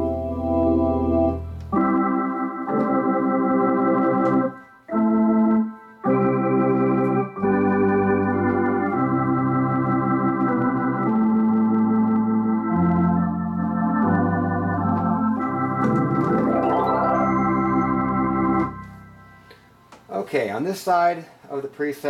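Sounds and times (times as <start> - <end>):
electronic organ chords: 0.0 - 20.1
low bass notes: 7.5 - 19.8.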